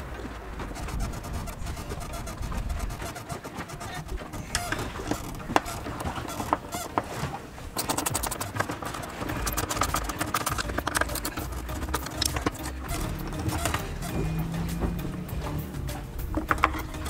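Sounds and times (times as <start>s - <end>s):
low rumble: 0.0s - 3.2s
tool scraping: 0.6s - 17.0s
hand tool clicking on metal: 7.8s - 14.3s.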